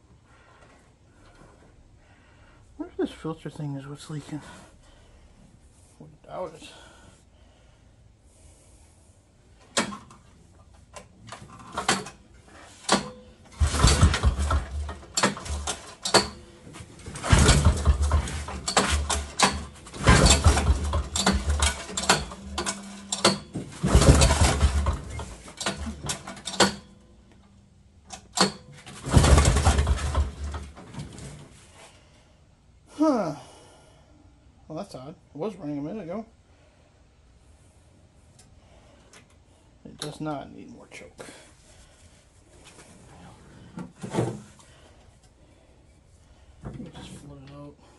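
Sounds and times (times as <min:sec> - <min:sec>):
small engine cranking without starting: 0:13.6 - 0:16.4, 0:17.1 - 0:26.6, 0:29.0 - 0:30.5.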